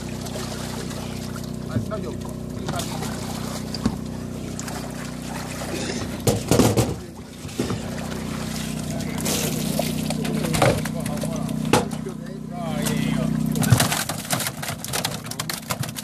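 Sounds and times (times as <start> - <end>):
water pouring off net: 0.0 - 11.6
net splashing through water: 0.0 - 11.7
steady motor hum: 0.0 - 16.0.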